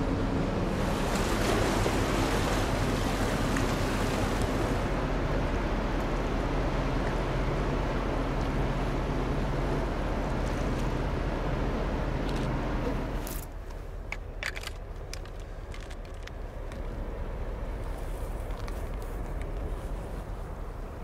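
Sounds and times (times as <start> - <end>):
water wash: 0.0 - 12.2
ship engine hum: 0.0 - 21.0.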